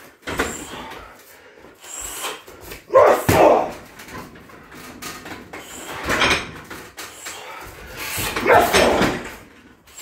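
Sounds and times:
man breathing hard: 0.3 - 2.9, 7.0 - 8.4.

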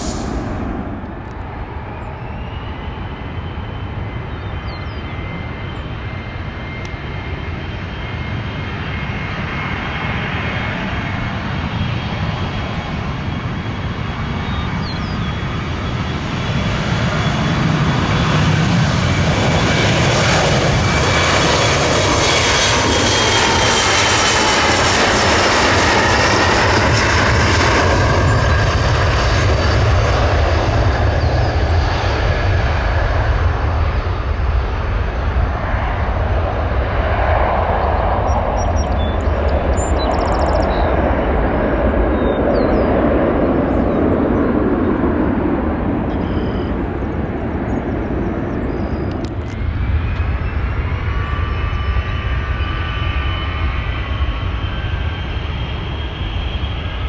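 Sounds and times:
engine whine falling in pitch: 0.0 - 8.4
jet engines roaring: 0.0 - 57.0.

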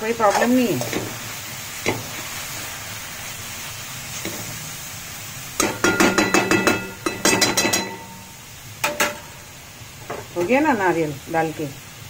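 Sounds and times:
cabbage sizzling in a pan: 0.0 - 12.0
metal spatula scraping and knocking pan: 5.6 - 8.2
metal pan ringing: 5.6 - 9.3.

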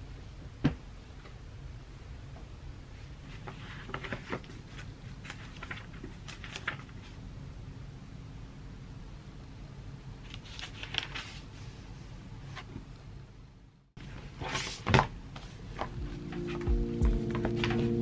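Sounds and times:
low room hum: 0.0 - 18.0
thin paper pages rustling: 3.3 - 7.2, 10.3 - 11.6.

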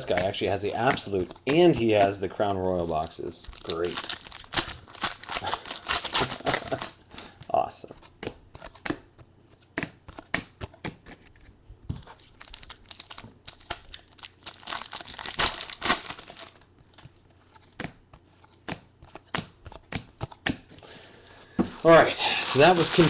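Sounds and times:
foil wrapper crinkling and tearing: 0.0 - 7.0, 12.2 - 17.1, 21.8 - 23.0
cards clicking and snapping: 8.2 - 9.0.

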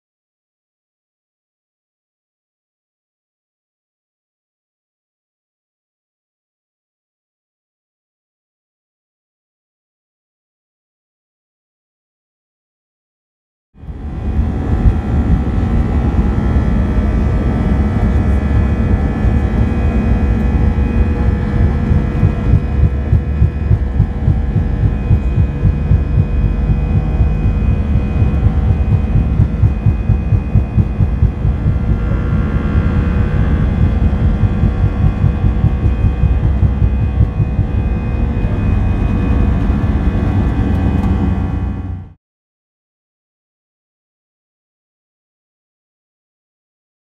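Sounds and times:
airliner engines rumbling: 13.8 - 42.1
engine whine: 13.8 - 42.2.

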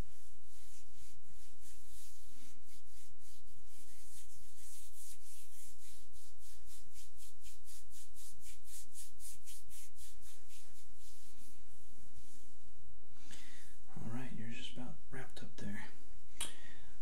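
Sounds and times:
palm rubbing over skin: 0.0 - 12.7.

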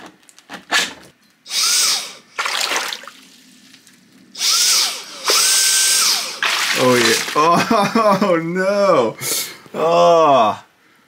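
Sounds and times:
handheld vacuum motor whining: 4.4 - 7.3.

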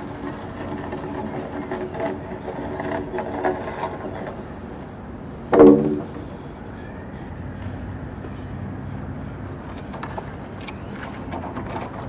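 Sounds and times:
steady rumble: 0.0 - 12.0
scattered clicks and knocks: 5.5 - 6.2.

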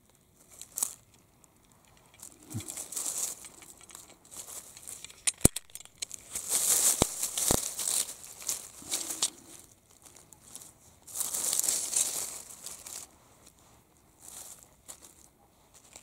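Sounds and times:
dry leaves rustling: 0.0 - 16.0
sharp clicks: 1.9 - 6.2.

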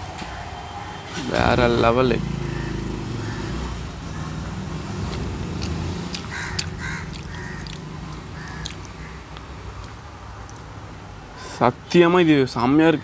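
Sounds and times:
crow cawing: 2.4 - 4.4, 6.3 - 9.3
person chewing: 5.1 - 10.7.

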